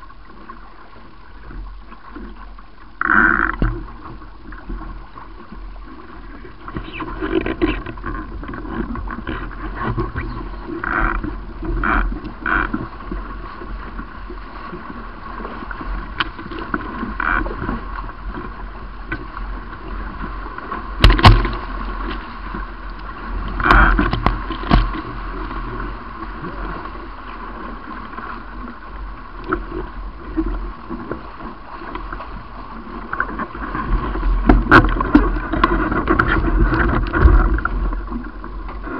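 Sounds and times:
water rushing against boat hulls: 0:00.0 - 0:38.9
sharp knocks and splashes: 0:20.2 - 0:22.7, 0:23.4 - 0:25.3, 0:33.1 - 0:37.9.

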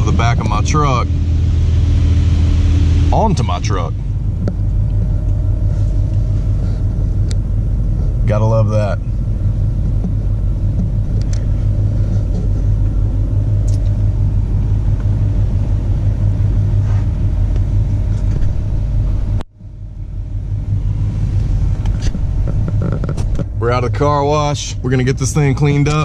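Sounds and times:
car wash low rumble: 0:00.0 - 0:26.0.

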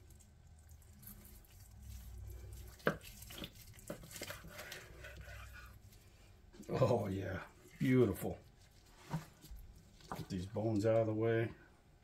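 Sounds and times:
knife slicing meat: 0:00.8 - 0:05.9.

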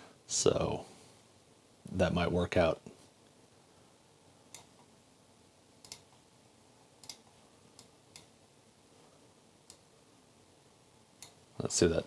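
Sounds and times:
computer mouse clicking: 0:04.5 - 0:04.9, 0:05.8 - 0:06.2, 0:07.0 - 0:08.3.

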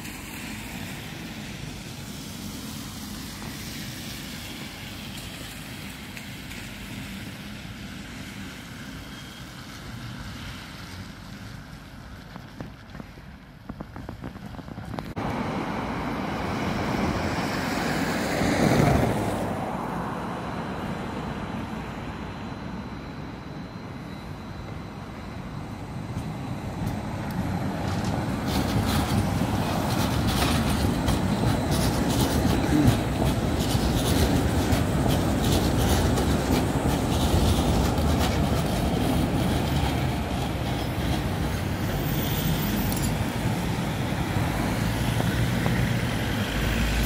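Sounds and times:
city street traffic: 0:00.0 - 0:47.0
tram approaching: 0:00.0 - 0:47.0
vehicle passing close: 0:40.0 - 0:47.0.

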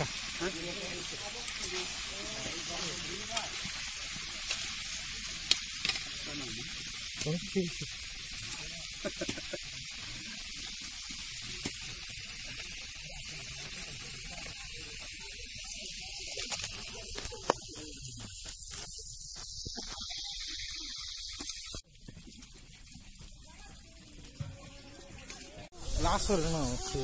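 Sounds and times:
meat sizzling in a wok: 0:00.0 - 0:27.0
wood fire clicks: 0:03.2 - 0:06.2.

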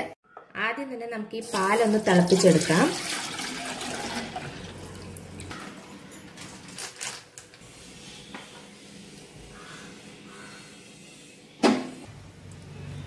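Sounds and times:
milk pouring into a saucepan: 0:02.3 - 0:05.1.

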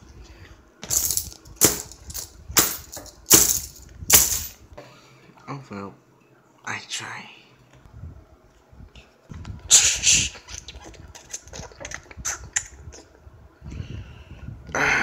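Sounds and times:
toys handling noise: 0:00.8 - 0:04.6.

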